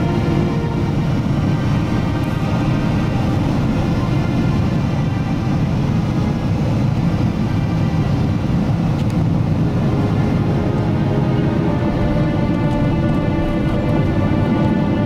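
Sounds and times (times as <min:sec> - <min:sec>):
jet engine and airflow rumble: 0:00.0 - 0:15.0
steady tones: 0:09.4 - 0:15.0.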